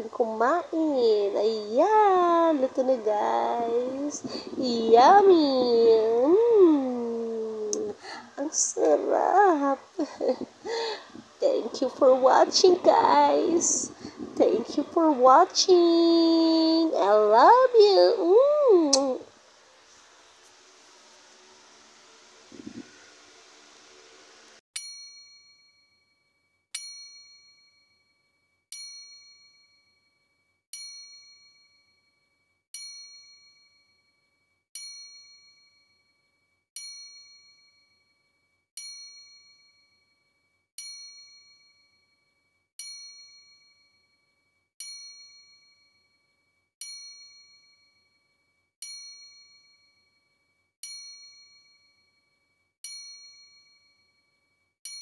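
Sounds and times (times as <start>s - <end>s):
bell-like ding: 24.8s - 55.0s.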